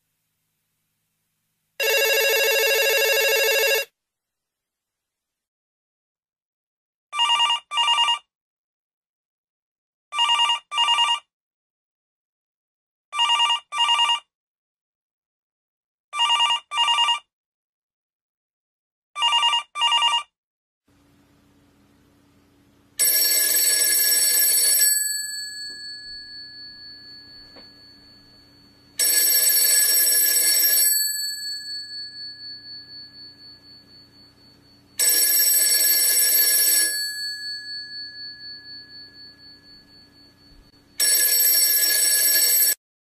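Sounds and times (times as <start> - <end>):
telephone bell ringing: 1.8 - 3.9, 7.2 - 8.3, 10.2 - 11.2, 13.2 - 14.2, 16.2 - 17.2, 19.2 - 20.3, 23.0 - 42.8.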